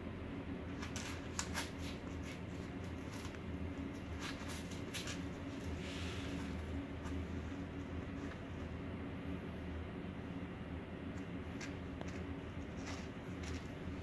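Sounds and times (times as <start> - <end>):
steady low hum: 0.0 - 14.0
kittens scratching in cat litter: 0.7 - 8.8, 11.2 - 14.0.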